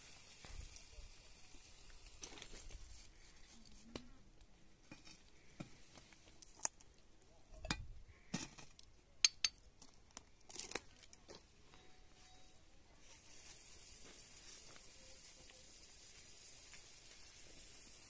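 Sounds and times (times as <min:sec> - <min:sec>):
rustling: 0:00.0 - 0:07.0.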